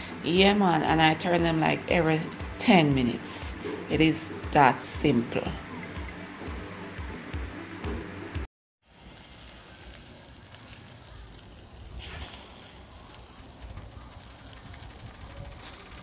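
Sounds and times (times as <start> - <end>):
charcoal crackling: 8.8 - 16.0
chicken sizzling on grill: 8.8 - 16.0.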